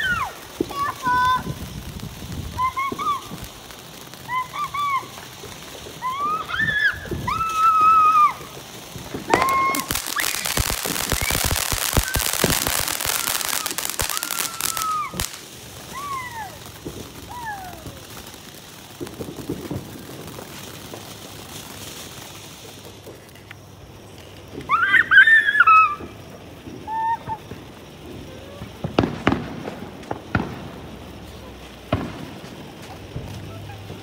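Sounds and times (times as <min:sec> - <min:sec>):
fireworks crackling: 0:00.0 - 0:34.0
fireworks hissing: 0:00.0 - 0:34.0
falling whistles: 0:02.4 - 0:23.2, 0:24.5 - 0:29.7.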